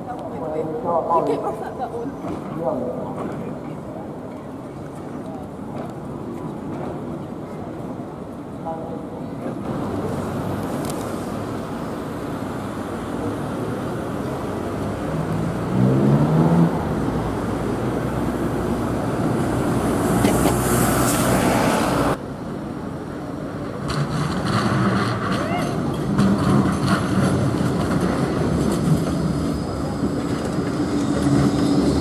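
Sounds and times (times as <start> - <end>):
street traffic noise: 0.0 - 32.0
bus diesel engine accelerating: 9.6 - 32.0.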